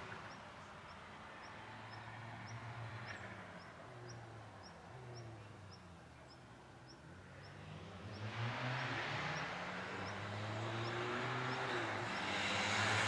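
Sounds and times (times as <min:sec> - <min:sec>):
bird chirping: 0:00.0 - 0:08.3
distant race car engine revving: 0:00.0 - 0:13.0.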